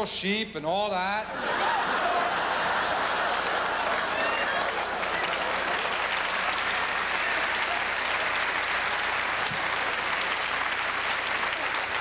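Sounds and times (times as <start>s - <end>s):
audience laughing: 1.3s - 10.4s
audience applauding: 1.5s - 12.0s.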